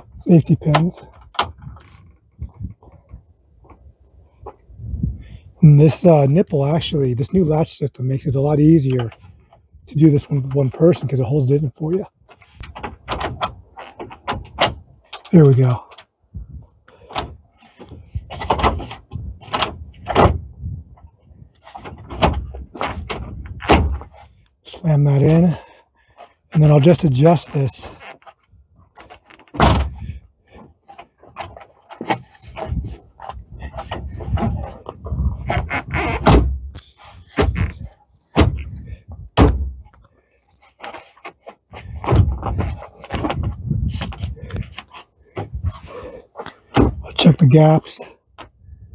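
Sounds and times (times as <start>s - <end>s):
vehicle door knocking and clattering: 38.4s - 38.7s, 39.3s - 39.9s.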